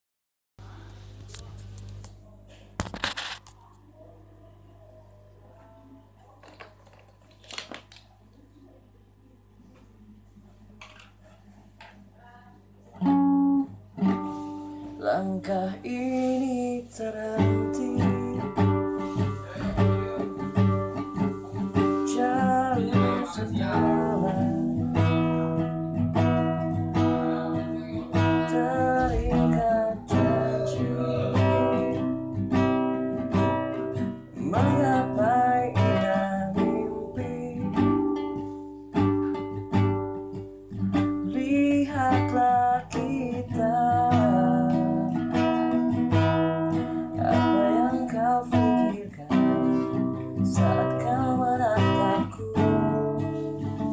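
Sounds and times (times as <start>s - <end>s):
classical guitar chords: 12.8s - 53.9s
man singing a ballad: 15.0s - 20.8s, 21.5s - 25.9s, 27.0s - 32.2s, 34.4s - 38.2s, 41.2s - 45.6s, 46.7s - 53.9s.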